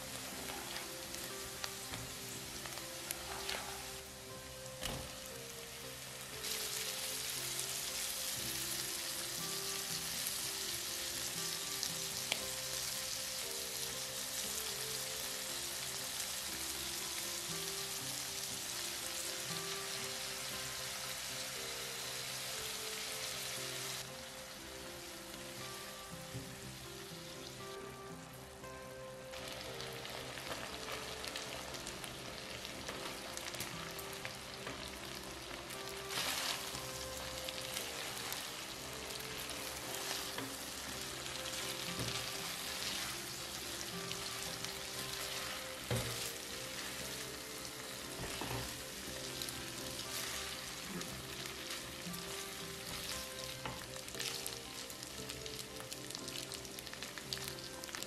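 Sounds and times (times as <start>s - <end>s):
sauce sizzling in frying pan: 0.0s - 58.0s
pasta tossed with tongs: 36.1s - 36.8s.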